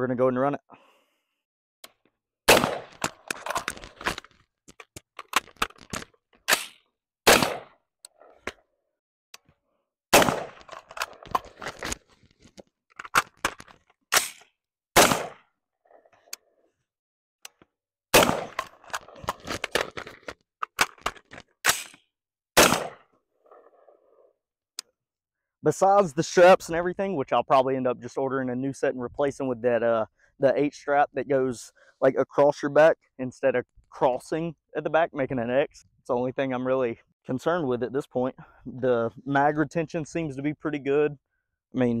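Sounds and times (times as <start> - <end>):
rifle shots: 2.5 - 3.2, 6.5 - 7.8, 10.1 - 11.4, 14.1 - 14.4, 15.0 - 15.4, 18.1 - 19.4, 22.6 - 23.1
rifle handling clicks and clatter: 2.8 - 6.8, 10.4 - 14.5, 18.4 - 22.1.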